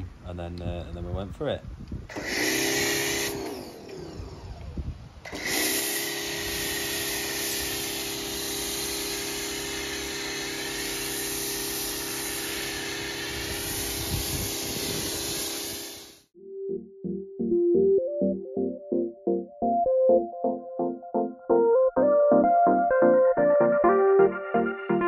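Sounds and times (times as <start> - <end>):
pressure washer motor hum: 2.1 - 16.3
hiss of foam spray: 5.6 - 16.3.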